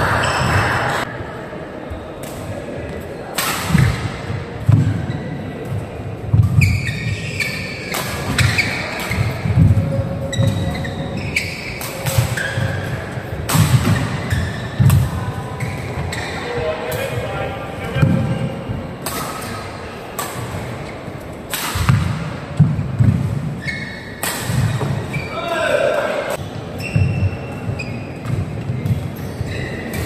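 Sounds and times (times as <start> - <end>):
murmur of voices: 0.0 - 6.4, 7.0 - 22.6
shoe squeaks: 6.5 - 13.0, 14.0 - 14.9, 15.5 - 16.7, 23.6 - 25.6, 26.4 - 30.0
racket striking shuttlecock: 21.5 - 23.2.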